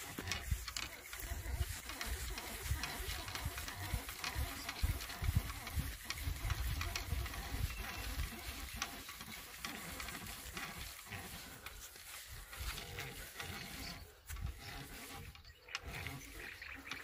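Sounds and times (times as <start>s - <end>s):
wind buffeting the microphone: 0.0s - 8.7s.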